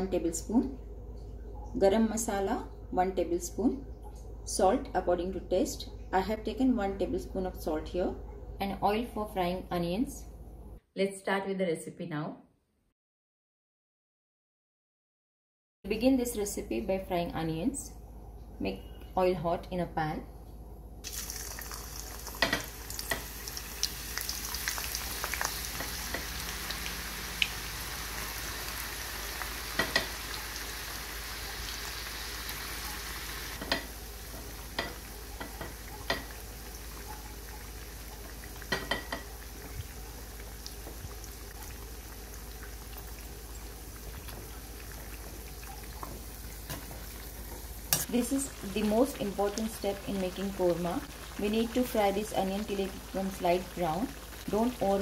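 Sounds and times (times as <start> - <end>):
onions sizzling in oil: 21.0 - 55.0.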